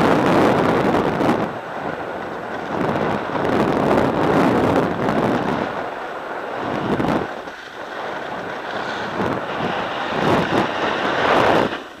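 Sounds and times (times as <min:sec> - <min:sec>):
wind rushing over microphone: 0:00.0 - 0:12.0
skis hissing on snow: 0:07.2 - 0:12.0.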